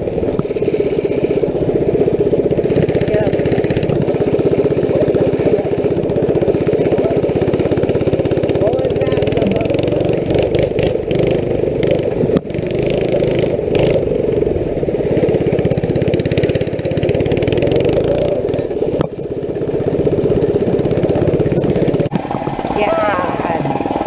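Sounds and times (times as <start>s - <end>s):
go-kart engine running loud: 0.0s - 24.0s.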